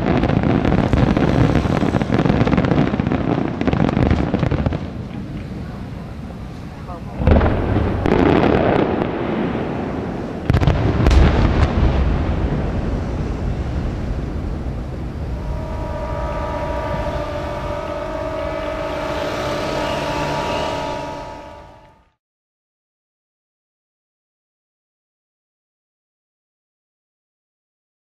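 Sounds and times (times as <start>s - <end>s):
fireworks bursting with echoing rumble: 0.0s - 22.0s
steady tones at different pitches: 0.0s - 22.2s.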